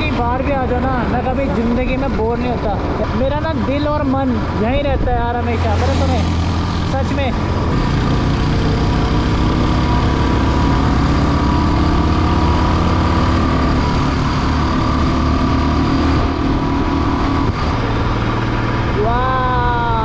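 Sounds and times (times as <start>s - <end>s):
wind and road noise: 0.0s - 20.0s
motorcycle engine running: 6.0s - 20.0s.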